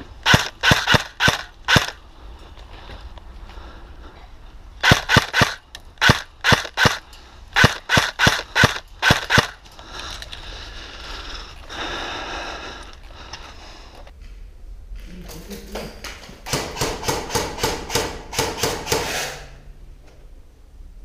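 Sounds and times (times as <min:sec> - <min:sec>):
airsoft gun shots: 0:04.8 - 0:07.0, 0:07.6 - 0:09.6, 0:16.5 - 0:19.5.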